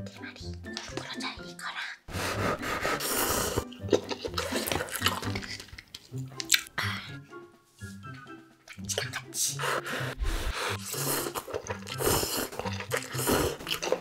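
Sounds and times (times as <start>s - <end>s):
background music: 0.0s - 14.0s
noodles slurped and chewed: 2.7s - 6.8s, 8.7s - 14.0s.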